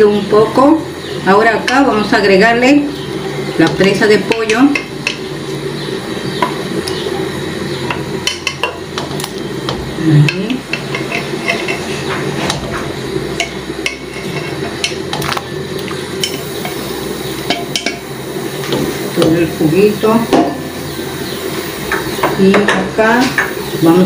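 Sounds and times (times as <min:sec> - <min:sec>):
stew boiling: 0:00.0 - 0:24.0
utensils clinking against pot: 0:03.6 - 0:05.3, 0:07.8 - 0:09.4, 0:10.2 - 0:12.6, 0:13.3 - 0:19.4.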